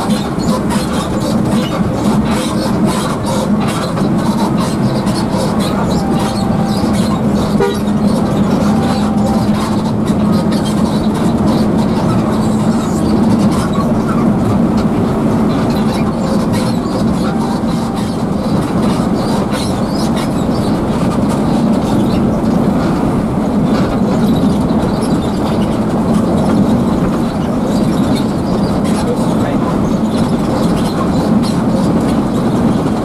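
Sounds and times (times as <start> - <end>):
diesel engine drone: 0.0 - 33.0
road and tyre noise: 0.0 - 33.0.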